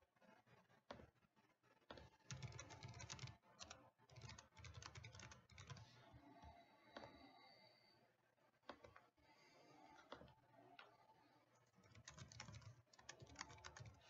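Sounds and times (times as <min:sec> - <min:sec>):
typing on computer keyboard: 0:01.9 - 0:05.9, 0:11.7 - 0:14.0.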